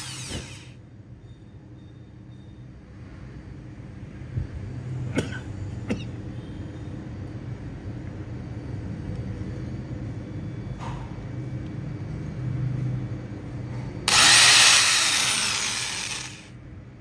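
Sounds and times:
electric drill motor hum: 0.0 - 0.7, 14.1 - 16.5.

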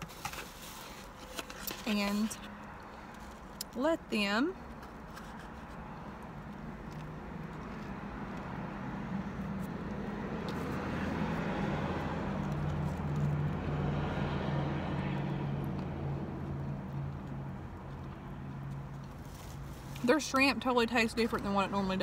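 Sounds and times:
car engine low hum: 4.6 - 22.0.

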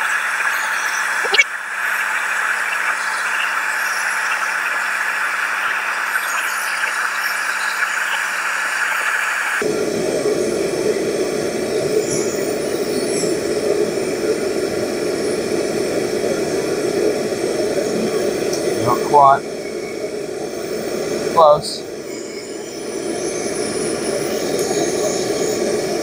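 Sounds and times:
blowtorch flame hissing: 8.3 - 26.0.

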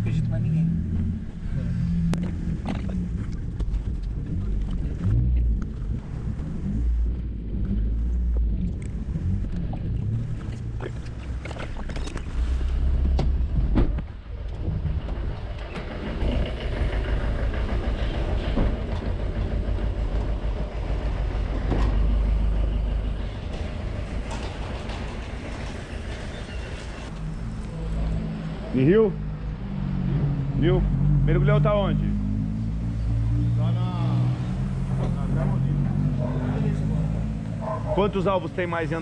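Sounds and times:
wind rumble: 0.0 - 28.6
car engine and road rumble: 0.0 - 39.0
street noise: 0.0 - 39.0.

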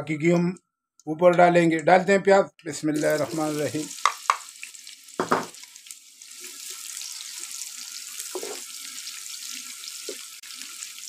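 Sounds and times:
onions sizzling in fat: 3.0 - 11.0.

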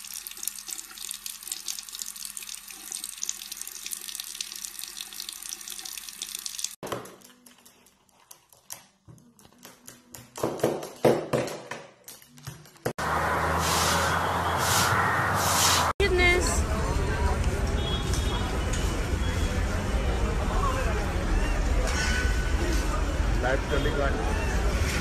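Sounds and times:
tap water running into sink: 0.0 - 6.8.

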